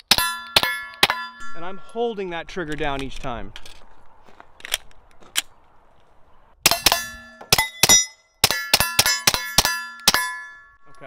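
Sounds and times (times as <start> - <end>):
metallic ringing: 0.0 - 2.3, 6.7 - 11.0.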